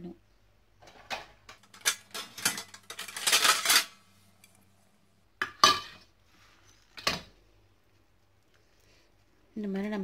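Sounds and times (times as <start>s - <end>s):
steel plates clinking and scraping: 0.9s - 4.6s.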